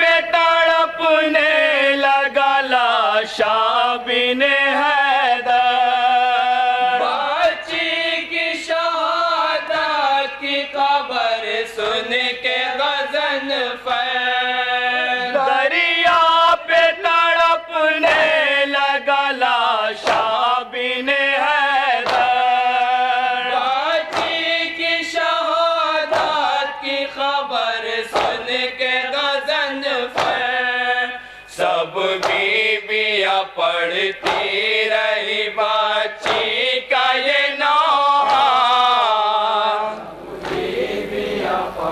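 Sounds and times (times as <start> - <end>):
men chanting through loudspeaker: 0.0 - 41.9
chest-beating slaps: 20.0 - 20.4, 22.0 - 22.4, 24.0 - 24.5, 26.1 - 26.5, 28.1 - 28.6, 30.1 - 30.5, 32.2 - 32.6, 34.0 - 35.4, 36.2 - 36.7, 40.4 - 40.8.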